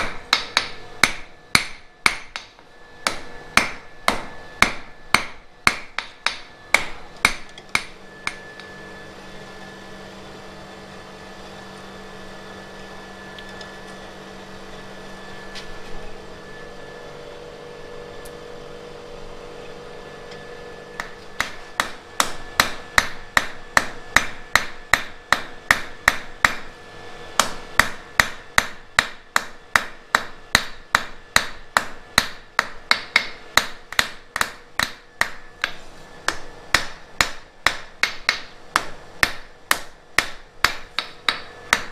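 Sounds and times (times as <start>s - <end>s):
hammer striking iron on anvil: 0.0s - 8.6s, 21.0s - 26.7s, 27.4s - 41.9s.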